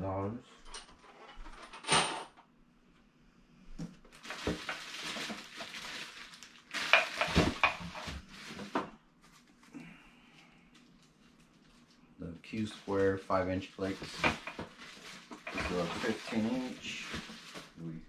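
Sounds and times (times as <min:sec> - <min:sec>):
packaging rustling and crinkling: 0:04.0 - 0:09.7, 0:10.7 - 0:17.9
clicks and knocks of goods handled: 0:06.8 - 0:08.9, 0:14.1 - 0:17.7.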